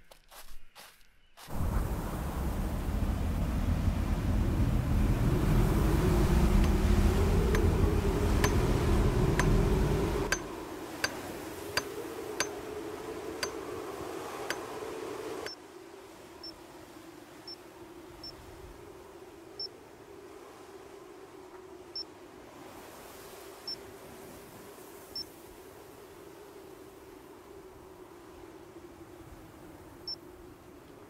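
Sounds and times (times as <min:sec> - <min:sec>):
low steady rumble: 0:01.5 - 0:10.6.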